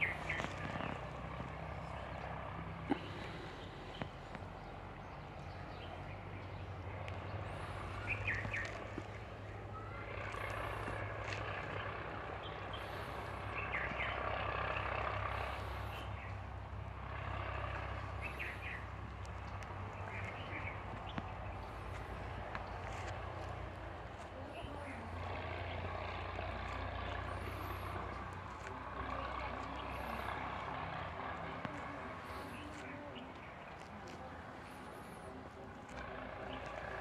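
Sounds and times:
bird chirps: 0.0s - 1.1s, 3.6s - 10.7s, 18.2s - 18.9s
steady low hum: 0.0s - 37.0s.

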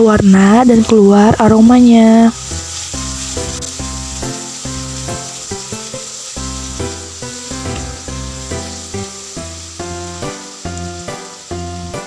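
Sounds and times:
background music: 0.0s - 12.0s
paste sizzling in hot oil: 0.0s - 12.0s
spatula stirring in wok: 1.1s - 12.0s.

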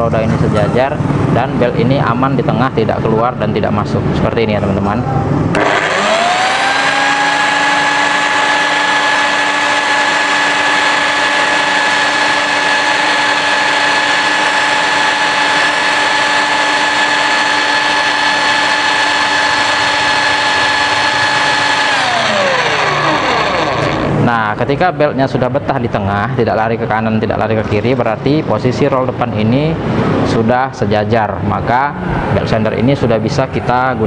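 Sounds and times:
belt sander whining: 5.5s - 24.3s.

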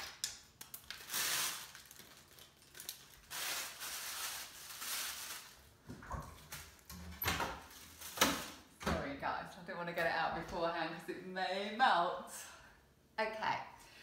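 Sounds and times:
plastic bag crinkling: 0.0s - 5.8s, 7.6s - 8.7s.

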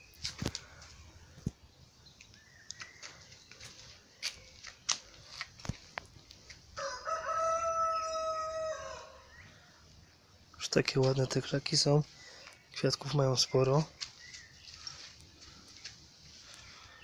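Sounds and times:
rooster crowing: 6.8s - 9.3s.

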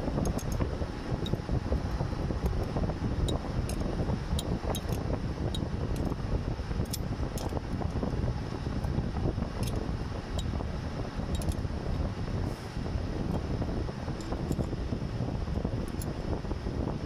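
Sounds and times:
steady rumbling background noise: 0.0s - 17.0s
wrench clicking on metal: 3.3s - 6.2s, 11.3s - 11.6s.

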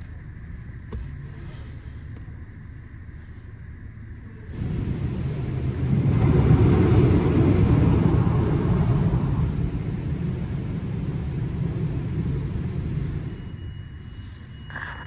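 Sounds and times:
car wash low rumble: 0.0s - 15.0s
loud rush of car wash spray: 4.5s - 14.4s.

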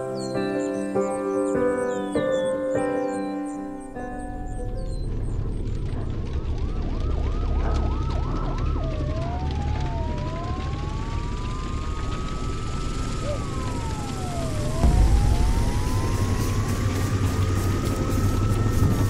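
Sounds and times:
low rumble: 4.6s - 19.0s
emergency vehicle siren: 5.1s - 19.0s.

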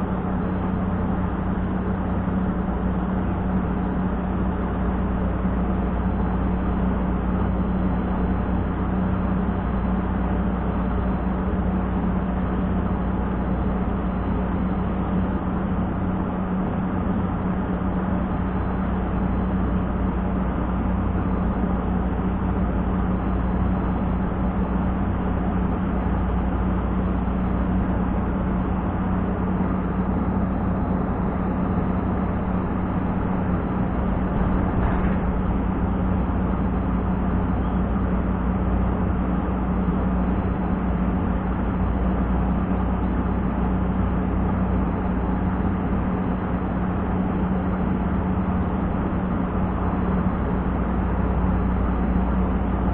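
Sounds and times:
constant low hum: 0.0s - 52.9s
wind buffeting microphone: 30.6s - 38.4s.

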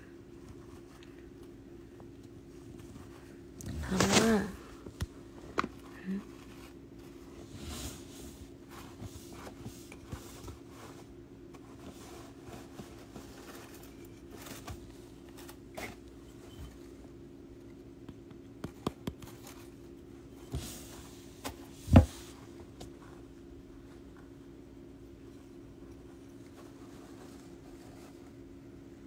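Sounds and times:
steady low hum: 0.0s - 29.0s
hamster rustling in bedding: 6.2s - 17.0s, 19.4s - 29.0s.

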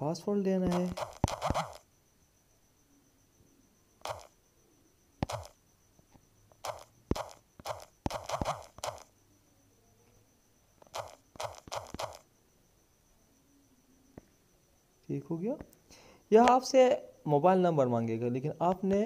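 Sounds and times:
fingertip taps on touchscreen: 5.2s - 5.5s.

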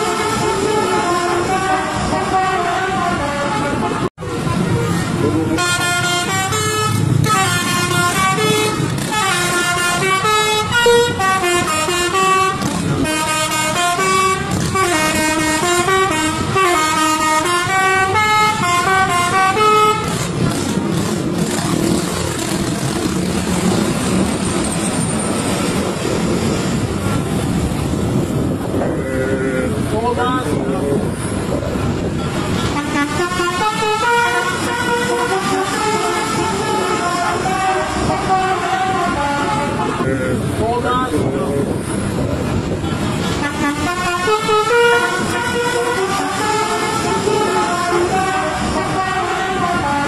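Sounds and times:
multi-tone bus horn tune: 0.0s - 20.7s, 32.1s - 40.6s, 42.8s - 50.0s
bus engine: 0.0s - 50.0s
road noise: 0.0s - 50.0s
wind: 0.0s - 50.0s.

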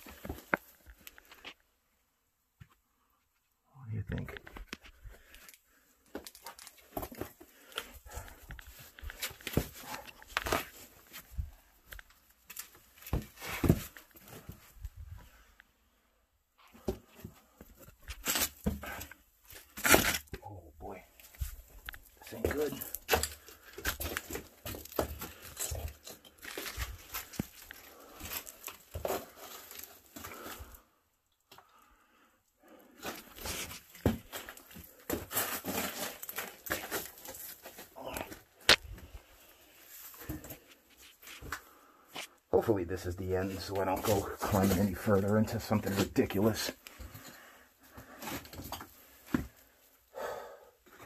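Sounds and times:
clothing and boots scraping stone: 33.0s - 38.2s, 43.3s - 47.3s
person breathing and grunting: 50.1s - 50.8s.

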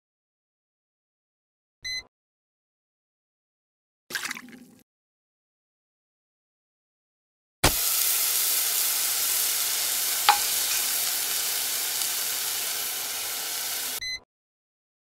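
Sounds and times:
steak sizzling in a frying pan: 7.6s - 14.0s.

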